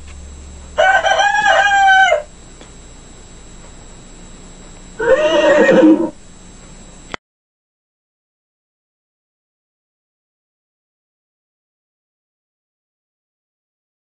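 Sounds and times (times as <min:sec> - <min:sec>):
rooster crowing: 0:00.8 - 0:02.3, 0:05.0 - 0:06.2.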